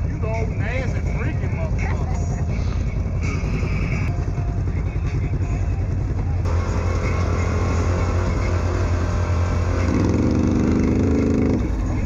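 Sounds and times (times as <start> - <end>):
atv engine running: 0.0 - 12.0
higher engine revving: 6.4 - 12.0.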